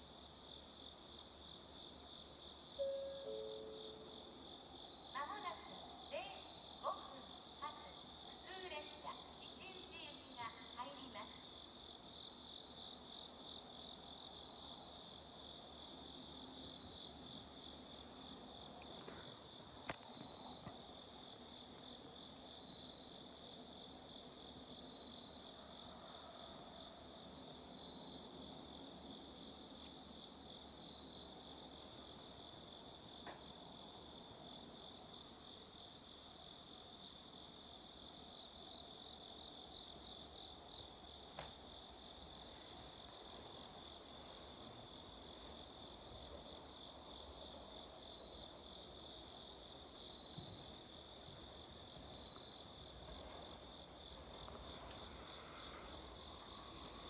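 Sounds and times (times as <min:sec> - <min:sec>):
night insects chirping: 0:00.0 - 0:57.0.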